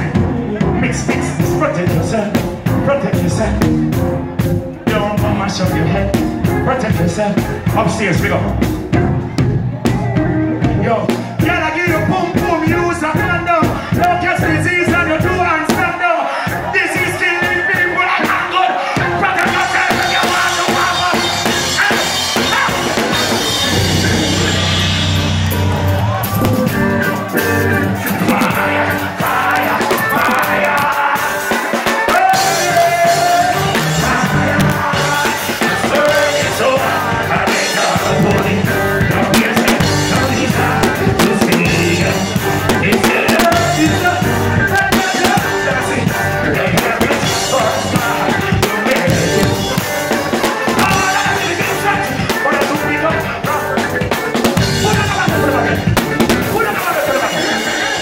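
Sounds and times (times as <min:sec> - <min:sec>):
heavy bass line: 0:00.0 - 0:15.9, 0:19.0 - 0:58.0
drums: 0:00.0 - 0:58.0
live reggae band playing: 0:00.0 - 0:58.0
person singing: 0:26.4 - 0:58.0.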